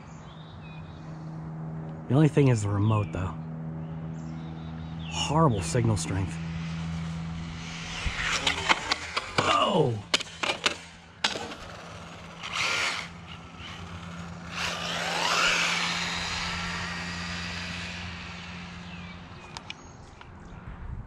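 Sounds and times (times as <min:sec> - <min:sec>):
electric motor whining: 0:04.6 - 0:20.0.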